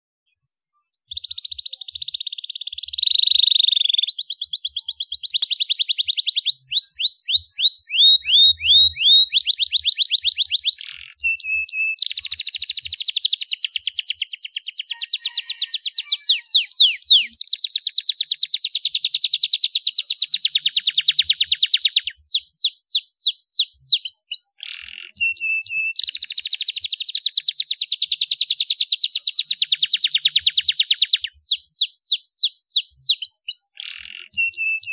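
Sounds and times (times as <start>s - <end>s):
canary singing trills: 0.3s - 34.9s.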